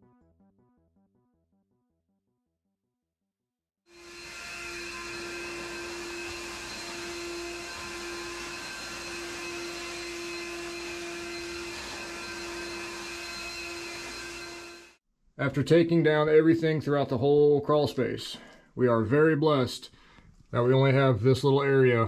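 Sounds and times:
shop vacuum whining: 3.9 - 15.0.

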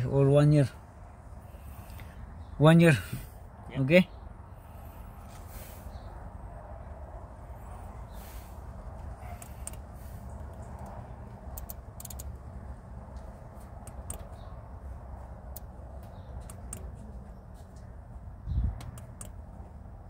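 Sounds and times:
low rumble inside car: 0.0 - 20.0.

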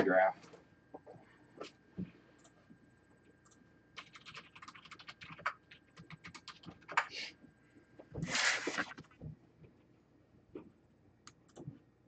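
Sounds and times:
typing on computer keyboard: 3.4 - 7.1.

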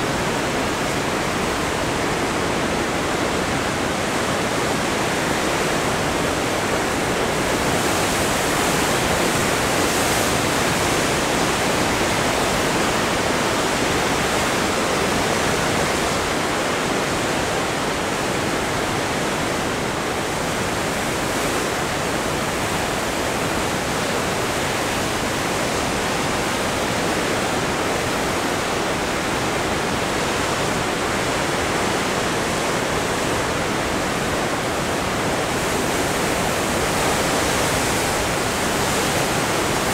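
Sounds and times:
surf washing over rocks: 0.0 - 39.9.

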